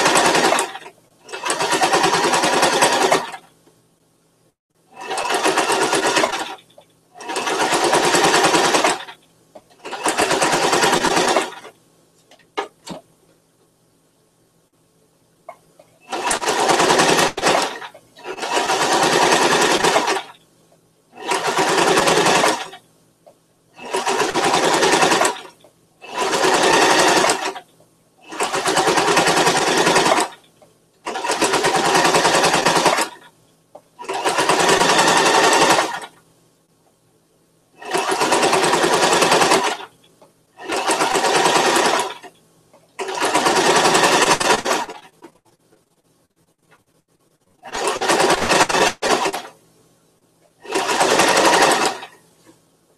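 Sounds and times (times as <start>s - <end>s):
sewing machine stitching: 0.0s - 3.5s, 4.9s - 11.8s, 16.0s - 20.4s, 21.2s - 22.8s, 23.8s - 33.4s, 34.0s - 36.2s, 37.8s - 39.9s, 40.6s - 42.4s, 43.0s - 45.3s, 47.6s - 49.6s, 50.6s - 52.2s.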